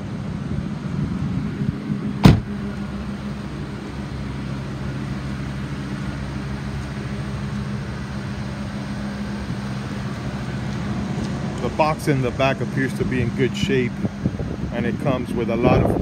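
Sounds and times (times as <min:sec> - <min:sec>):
truck engine idling: 0:00.0 - 0:16.0
truck door slamming: 0:02.2 - 0:02.7.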